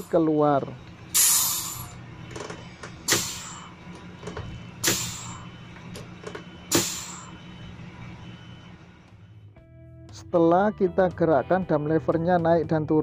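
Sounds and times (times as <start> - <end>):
pneumatic exhaust hissing: 1.0 - 8.2.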